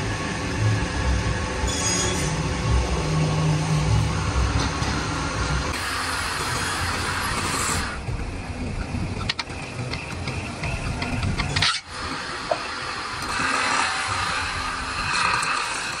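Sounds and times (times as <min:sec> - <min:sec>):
wood lathe rumbling: 0:05.0 - 0:08.1, 0:11.8 - 0:16.0.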